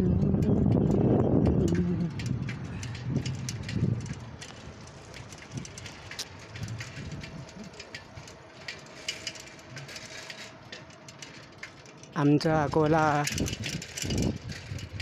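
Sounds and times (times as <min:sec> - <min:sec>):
microphone crackles and clicks: 0:00.0 - 0:07.7
quiet street ambience: 0:00.0 - 0:15.0.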